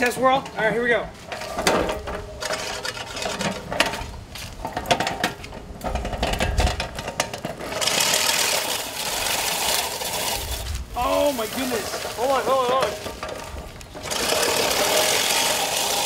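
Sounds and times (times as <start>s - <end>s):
push reel mower clicking: 1.3s - 4.0s, 4.6s - 16.0s
reel blades whirring through grass: 7.6s - 16.0s.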